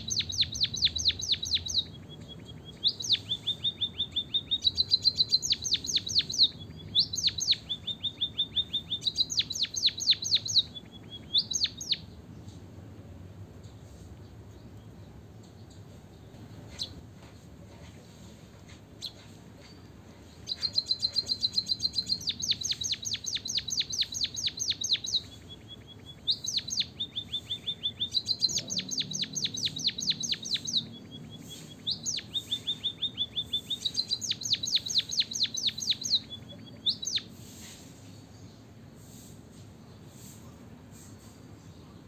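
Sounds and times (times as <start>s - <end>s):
bird singing with clicking notes: 0.0s - 12.0s, 20.5s - 37.3s.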